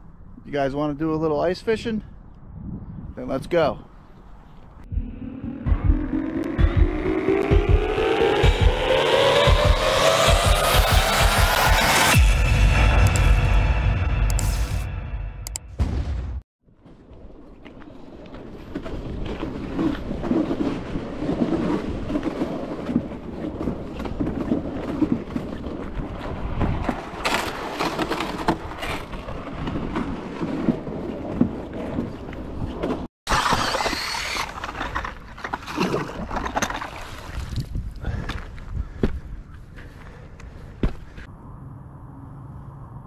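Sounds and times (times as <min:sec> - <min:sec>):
sled scraping over ice: 0:18.5 - 0:37.6.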